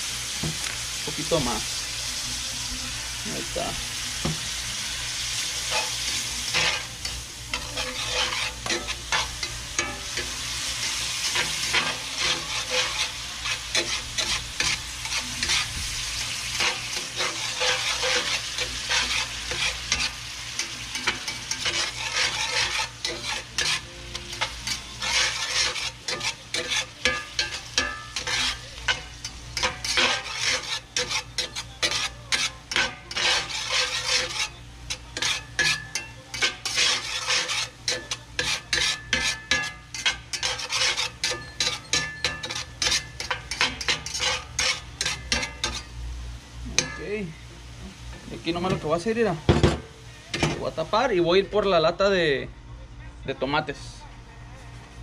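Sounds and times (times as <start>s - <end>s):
pan juices hissing: 0.0s - 45.9s
meat sizzling in a skillet: 0.0s - 51.6s
metal spatula scraping a pan: 5.0s - 46.0s, 46.7s - 47.3s.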